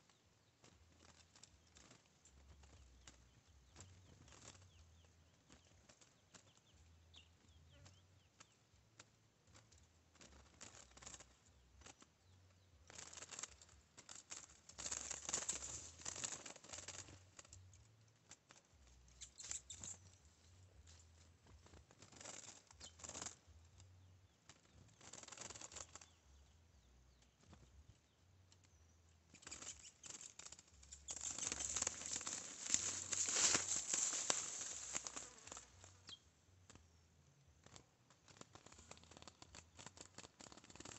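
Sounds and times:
bird wings beating against cage: 12.9s - 17.5s, 21.5s - 23.4s, 24.6s - 26.1s, 29.4s - 36.0s.

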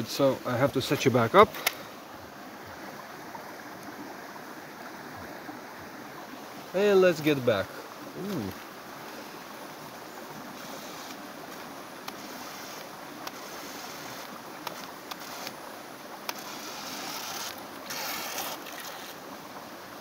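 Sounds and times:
small river rushing over waterfalls: 0.0s - 20.0s
sharp clicks: 1.5s - 1.8s.

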